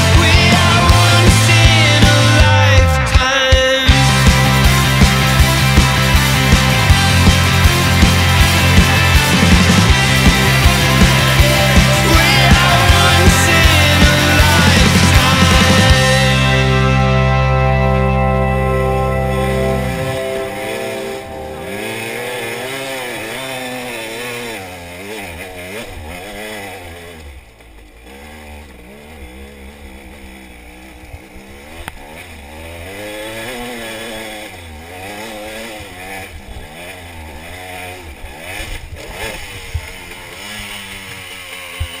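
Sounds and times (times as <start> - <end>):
dirt bike engine revving: 0.0 - 42.0.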